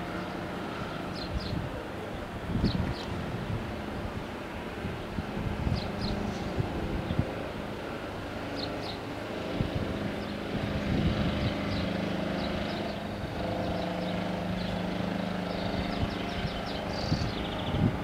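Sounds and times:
small birds chirping: 8.5s - 9.0s, 10.1s - 18.0s.

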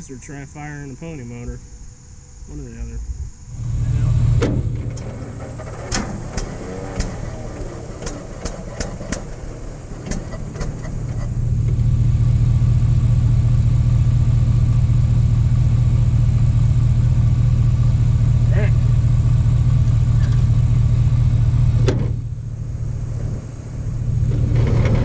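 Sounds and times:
small engine running: 3.5s - 25.0s
engine clicks and knocks: 4.4s - 12.0s, 21.7s - 25.0s.

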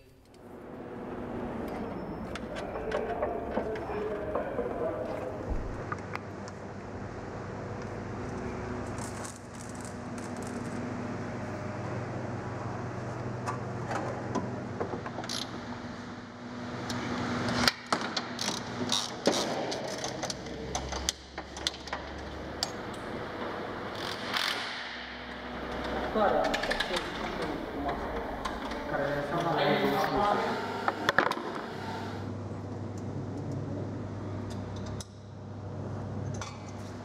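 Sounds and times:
steady low hum: 0.0s - 37.0s.

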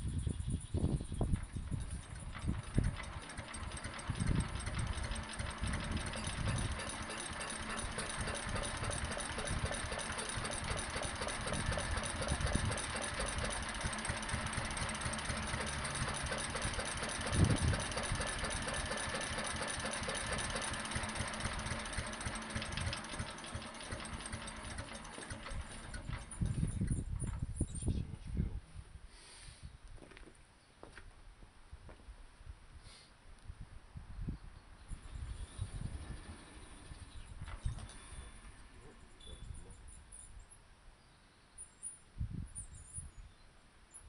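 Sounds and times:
stationary engine running: 1.4s - 26.8s, 35.0s - 39.8s.

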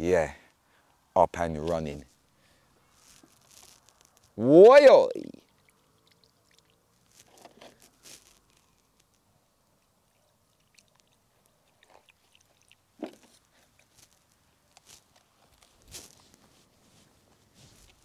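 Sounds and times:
handling rustles and clicks: 13.1s - 18.0s.

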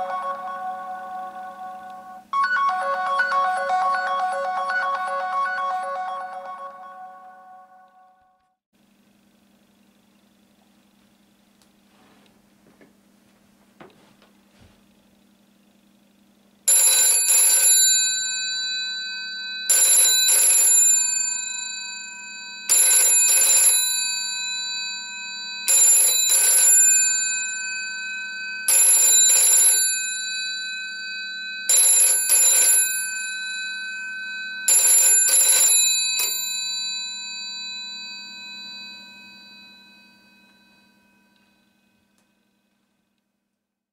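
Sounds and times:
telephone bell ringing: 0.0s - 8.4s, 16.7s - 42.0s.

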